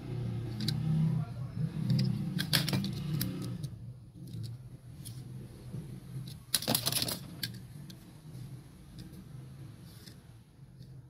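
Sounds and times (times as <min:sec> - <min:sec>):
toy cars clattering: 0:06.2 - 0:08.0.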